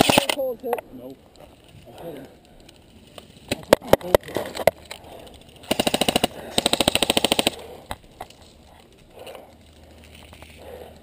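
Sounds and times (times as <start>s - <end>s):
airsoft rifle full-auto bursts: 0.0s - 0.4s, 5.7s - 7.6s.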